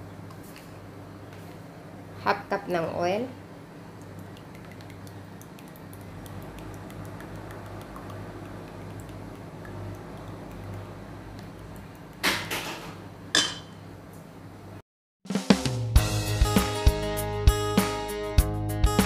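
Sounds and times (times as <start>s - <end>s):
low steady hum: 0.0s - 12.2s
music: 15.3s - 19.0s.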